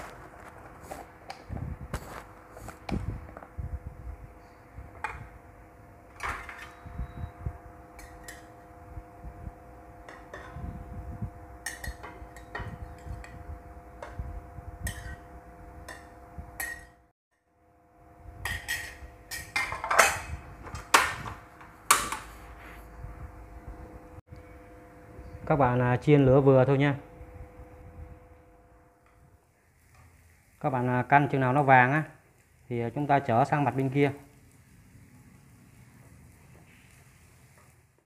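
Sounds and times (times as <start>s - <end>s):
metal spoon clinking on plate and pan: 8.0s - 8.6s, 11.6s - 13.4s, 14.8s - 17.0s, 18.4s - 20.3s.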